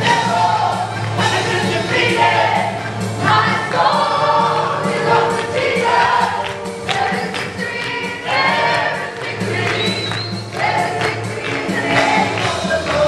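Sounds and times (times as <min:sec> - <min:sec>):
instrumental backing with beat: 0:00.0 - 0:13.0
worship team singing: 0:00.0 - 0:13.0.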